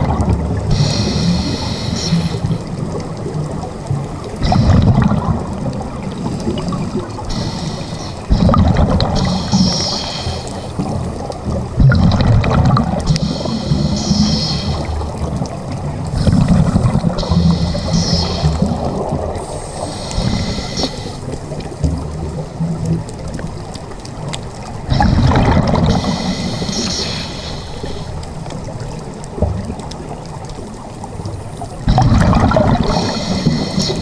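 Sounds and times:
gush of exhaled bubbles: 0.0 - 1.8, 4.3 - 10.0, 10.8 - 23.0, 24.9 - 27.1, 31.8 - 34.0
underwater regulator breathing: 0.6 - 2.7, 6.2 - 11.0, 13.0 - 15.2, 16.1 - 21.5, 24.9 - 28.3, 31.9 - 34.0.

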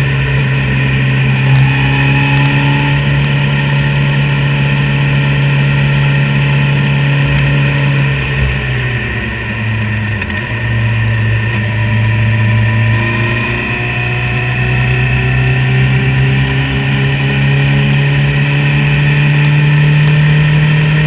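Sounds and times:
motorcycle engine running: 0.0 - 21.0.

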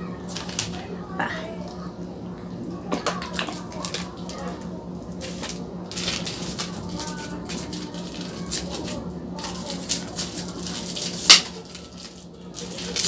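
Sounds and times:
plastic straw crinkling and clicking: 3.0 - 13.0.

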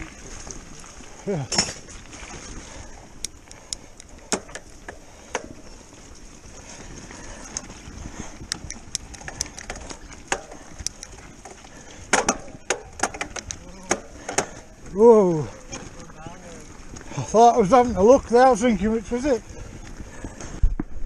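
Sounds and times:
tyres crunching over gravel: 0.0 - 20.6
clicks and knocks from bike: 3.2 - 14.7.

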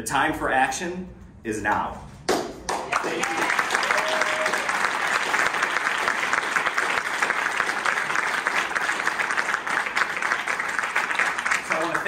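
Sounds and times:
people applauding: 2.6 - 12.0.

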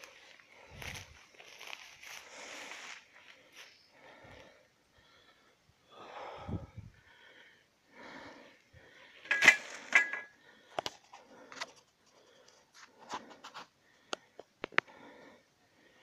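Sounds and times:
rustling of tall grass: 0.0 - 3.8.

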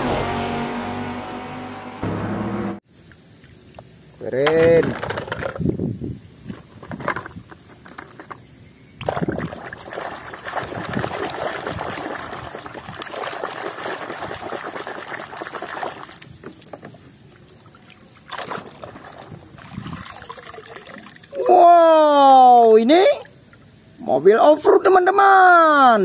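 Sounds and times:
water dripping: 9.0 - 21.4
water sloshing and splashing: 9.0 - 21.4.

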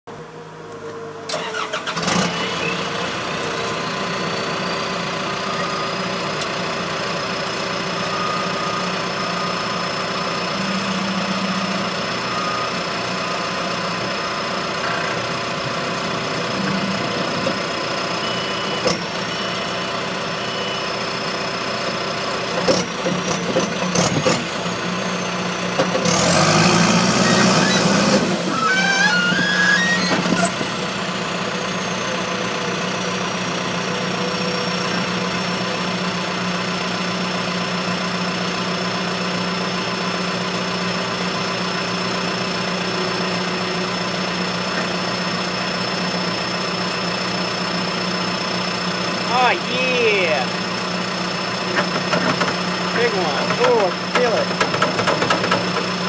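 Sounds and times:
engine running with high whine: 0.1 - 55.9
loader driving: 0.1 - 56.0
engine cranking and starting: 1.3 - 2.6.

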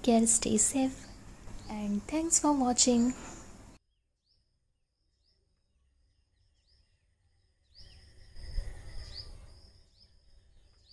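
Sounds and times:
faint bird chirps: 2.8 - 10.9.

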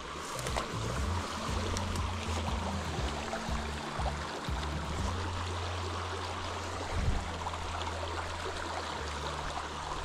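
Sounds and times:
stream babbling over rocks: 0.0 - 10.0.

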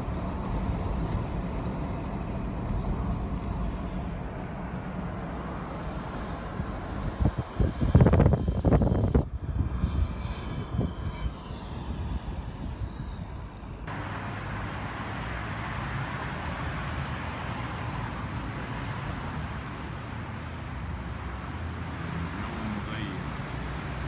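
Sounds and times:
vehicle and road noise: 0.0 - 24.0
steady hiss: 5.0 - 14.2.

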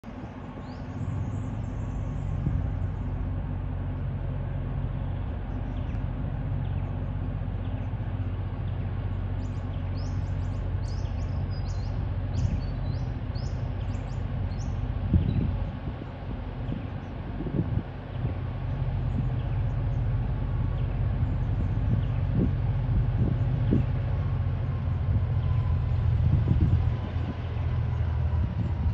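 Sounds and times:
diesel locomotive engine drone: 0.0 - 28.9
small birds chirping: 6.6 - 17.2.

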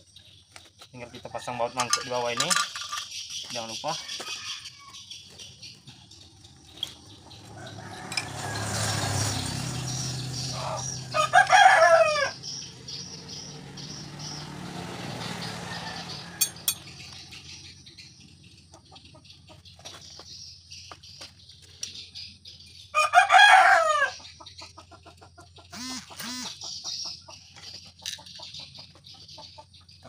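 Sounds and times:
rooster crowing: 7.4 - 9.8, 10.4 - 12.6, 15.2 - 17.0, 22.9 - 24.2.

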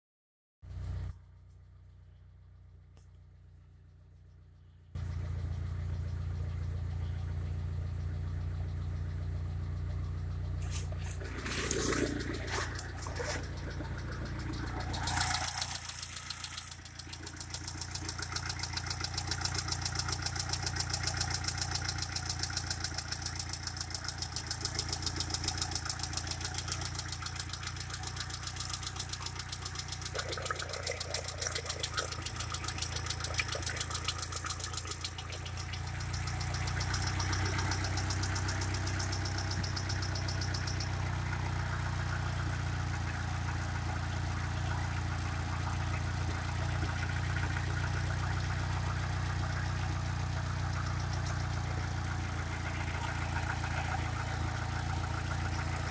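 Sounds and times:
car engine idling: 0.7 - 55.9
regular sharp ticking: 11.0 - 42.7.

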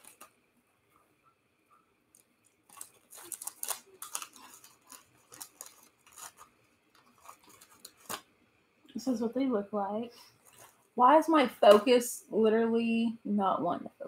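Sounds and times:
plastic snack bag crinkling: 0.0 - 0.4, 2.1 - 8.3, 10.3 - 10.8.

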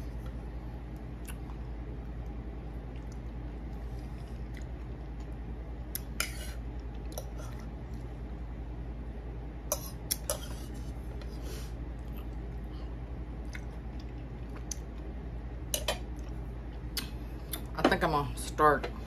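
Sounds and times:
steady low hum: 0.0 - 19.0
fork scraping a plate: 6.2 - 6.6, 9.7 - 11.0.

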